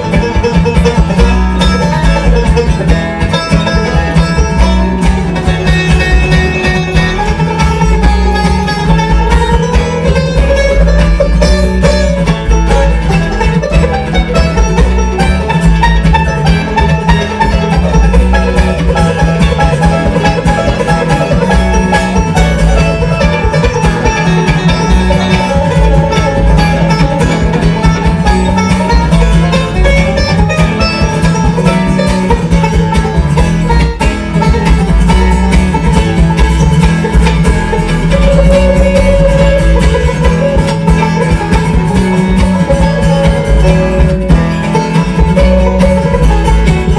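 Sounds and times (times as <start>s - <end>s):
banjo picking solo: 0.0s - 46.9s
guitar: 0.0s - 46.9s
upright bass line: 0.0s - 46.9s.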